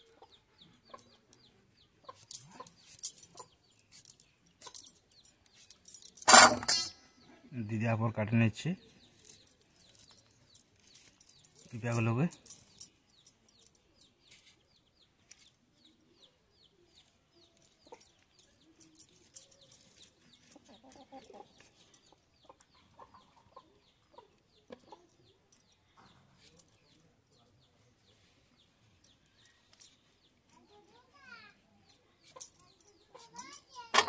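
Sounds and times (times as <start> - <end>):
chickens clucking: 18.8 - 25.5.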